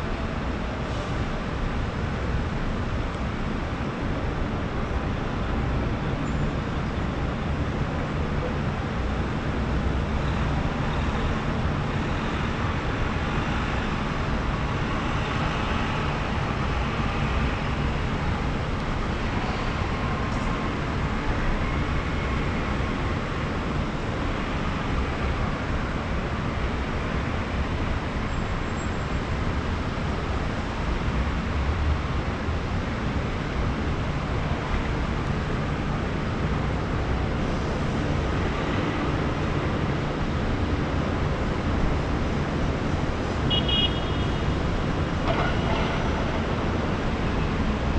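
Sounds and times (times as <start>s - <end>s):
distant city traffic: 0.0s - 47.9s.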